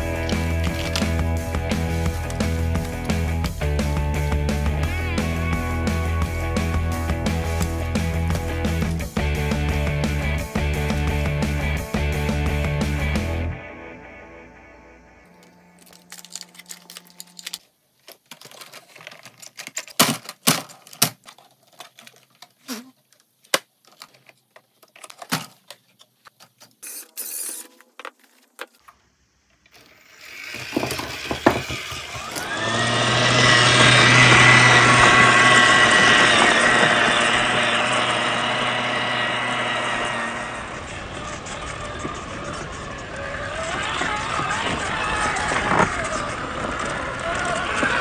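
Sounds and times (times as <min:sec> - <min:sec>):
electric motor whine: 0:00.0 - 0:09.5, 0:12.2 - 0:17.6, 0:29.8 - 0:48.0
clicks and knocks of handling: 0:15.8 - 0:26.8.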